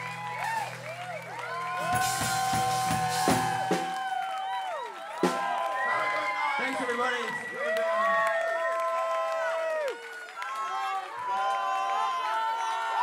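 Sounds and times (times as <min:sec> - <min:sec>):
drum hits: 0:01.8 - 0:04.1.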